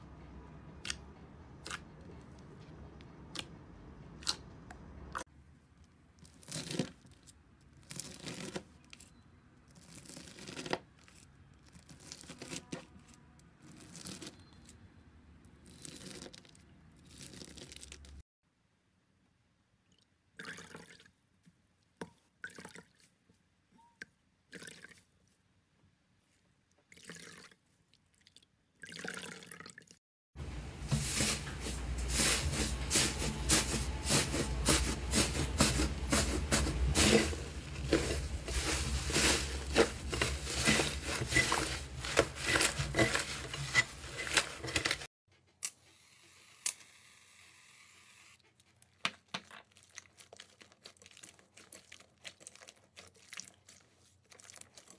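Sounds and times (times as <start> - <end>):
slime squishing and crackling: 48.9 - 54.9.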